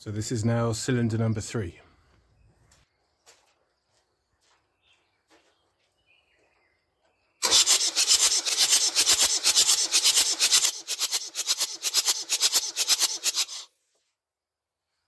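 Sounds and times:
starter motor cranking diesel engine: 7.4 - 13.7.

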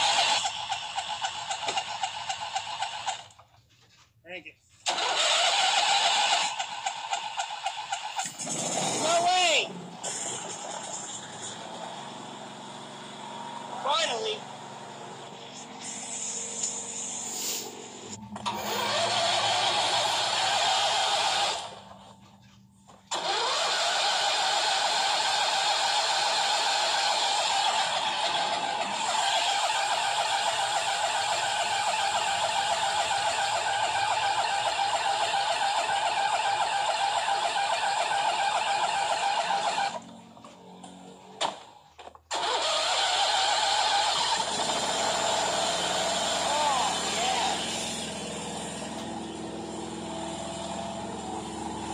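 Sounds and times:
motor whining: 9.9 - 22.1, 22.9 - 51.9.

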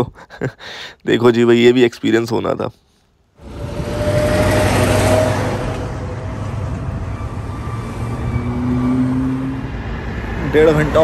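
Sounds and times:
road traffic: 3.3 - 11.0
diesel truck driving past: 3.4 - 11.0.

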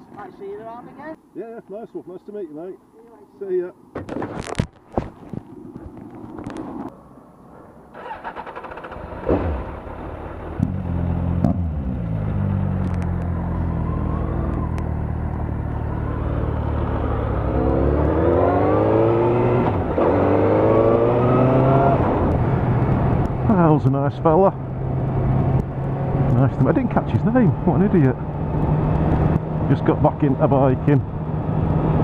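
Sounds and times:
motorcycle engine accelerating: 8.0 - 23.7, 24.6 - 32.0.

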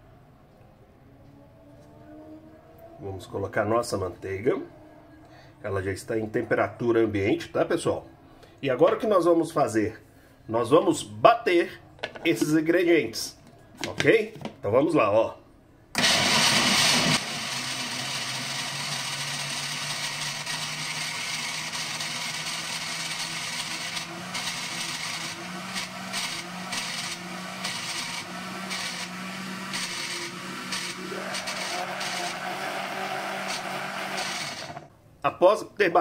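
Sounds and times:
blender motor running: 16.0 - 34.9.

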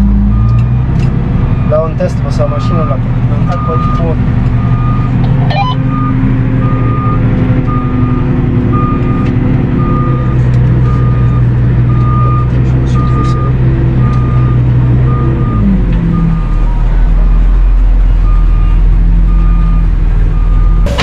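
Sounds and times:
short electronic warning beep: 2.6 - 8.2
tractor engine under load: 3.0 - 16.9, 20.6 - 21.0.

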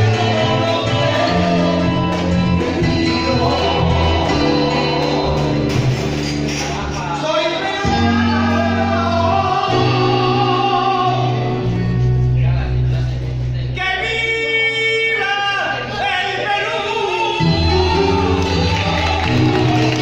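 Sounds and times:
man singing: 0.0 - 12.3, 13.7 - 19.5
guitar accompaniment: 0.0 - 20.0.

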